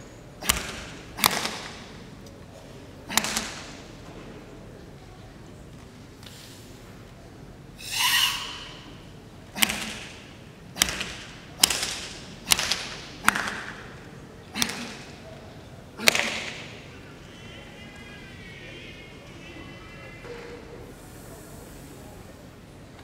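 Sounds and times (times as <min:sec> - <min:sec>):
open-hand slaps on body: 0:16.0 - 0:16.5.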